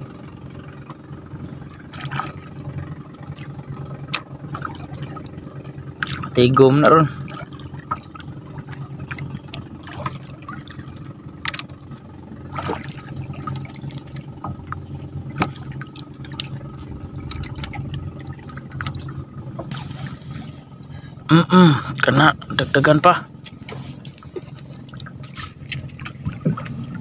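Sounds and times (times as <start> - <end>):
steady low hum: 0.0 - 27.0
water trickling and dripping: 23.5 - 27.0.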